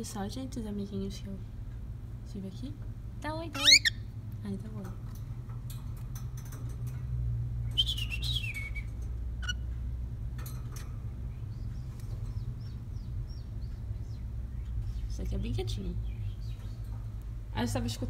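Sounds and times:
steady low hum: 0.0 - 18.0
bird chirps: 3.6 - 4.1, 7.7 - 9.7, 11.3 - 17.0
cockatiel whistled call: 7.8 - 9.6.

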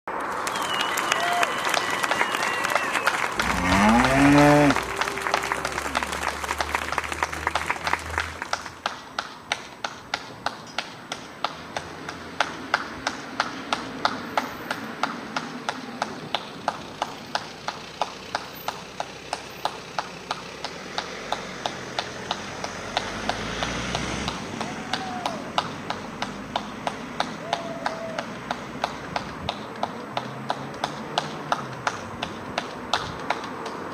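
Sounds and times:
applause from many people: 0.1 - 10.0, 26.5 - 32.0
hands clapping a steady beat: 0.2 - 23.6, 24.2 - 33.9.

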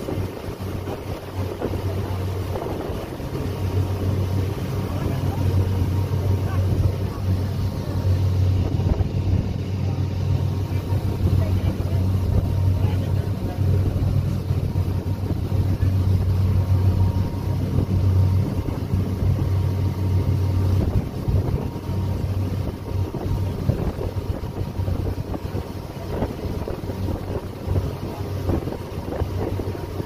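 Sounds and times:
ferry engine low hum: 0.0 - 30.0
water rushing from wake: 0.0 - 30.0
wind on microphone: 0.0 - 30.0.

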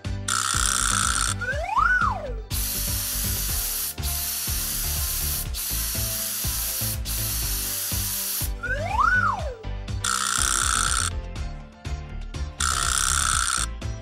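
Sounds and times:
background music with bass beat: 0.0 - 14.0
rising and falling whistle: 0.6 - 2.4, 8.6 - 9.6
hiss of water spray: 2.5 - 9.2.

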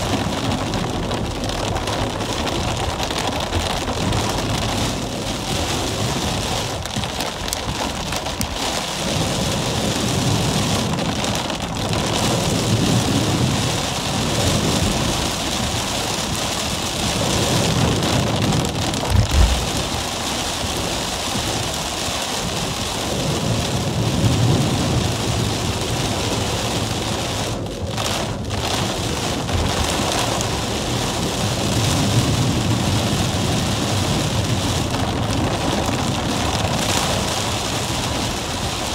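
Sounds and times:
heavy rain drumming on car roof: 0.0 - 38.9
low road rumble: 0.0 - 38.9
low thump: 19.0 - 20.0.

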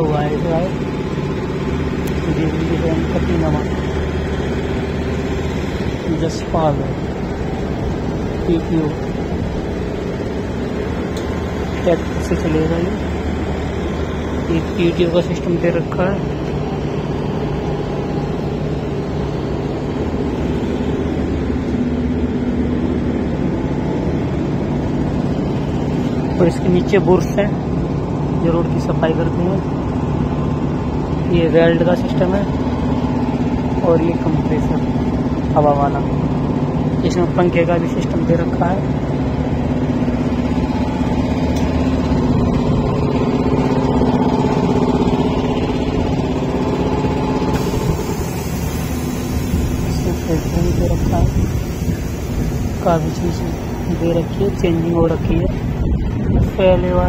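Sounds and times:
engine humming: 0.0 - 57.0.

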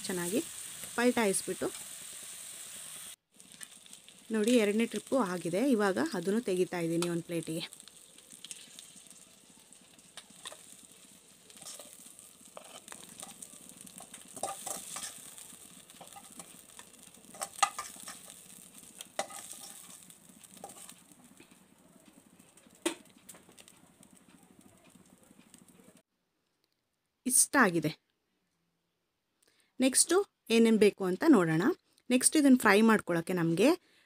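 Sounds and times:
prawns sizzling in hot oil: 0.0 - 26.0
utensil scraping a pan: 11.5 - 18.4, 19.0 - 21.0.

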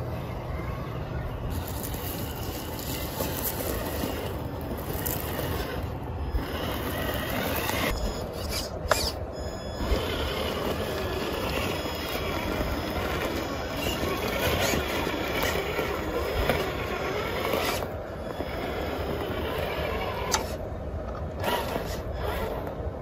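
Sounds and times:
electric motor whining: 1.5 - 20.6, 21.3 - 22.8.

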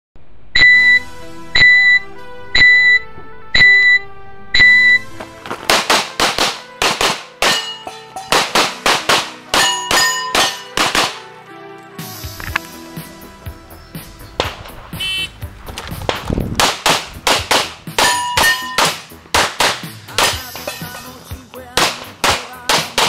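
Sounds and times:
high beeps: 0.6 - 1.0, 1.6 - 3.0, 3.6 - 4.0, 4.6 - 5.1
music: 0.6 - 23.0
handgun shots: 5.6 - 11.2, 16.1 - 20.5, 21.8 - 23.0.

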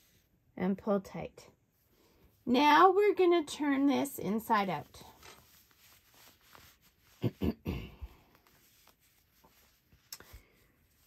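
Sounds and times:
fabric rustling: 3.8 - 11.0.

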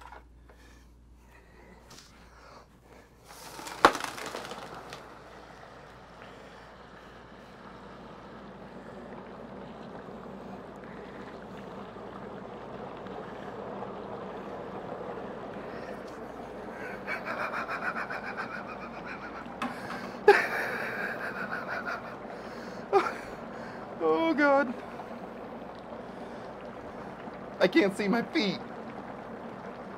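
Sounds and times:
dry ice bubbling hiss: 0.4 - 29.9
water poured from bucket: 3.2 - 6.1.

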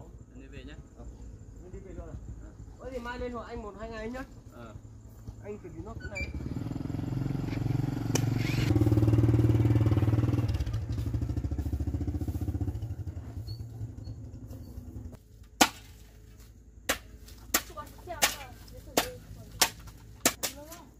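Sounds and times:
small motorcycle engine: 5.8 - 15.2
hoe striking hard ground: 15.4 - 20.9.

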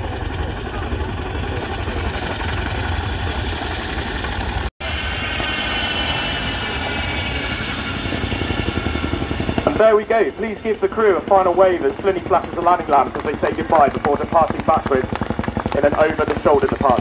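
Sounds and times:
helicopter rotor thudding: 11.3 - 17.0.

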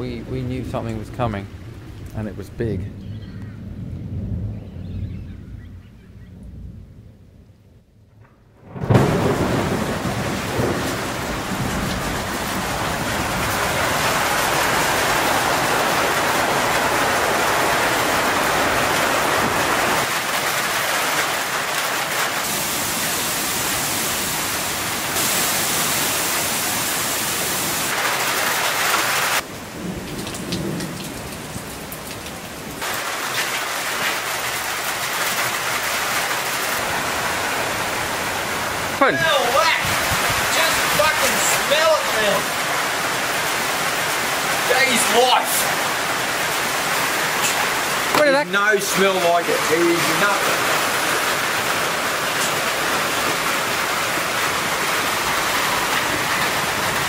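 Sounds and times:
heavy rain pouring: 0.0 - 7.3, 8.3 - 57.0
low thunder rumbling: 0.0 - 20.7, 29.4 - 33.0, 36.8 - 57.0.

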